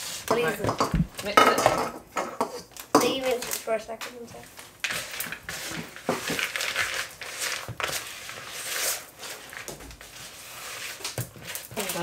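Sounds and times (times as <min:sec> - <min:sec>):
spatula scraping dough in bowl: 0:04.8 - 0:12.0.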